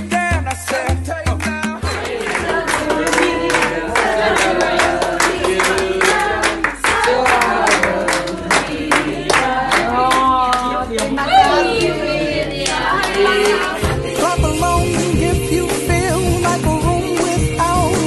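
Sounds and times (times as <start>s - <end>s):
people clapping in time: 0.0s - 14.1s
people singing a celebration song: 0.0s - 18.0s
music with heavy bass beat: 13.8s - 18.0s.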